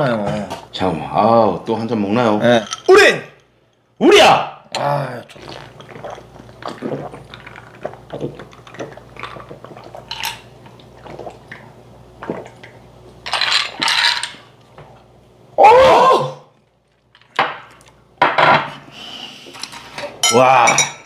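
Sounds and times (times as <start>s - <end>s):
glasses clinking: 20.2s - 21.0s.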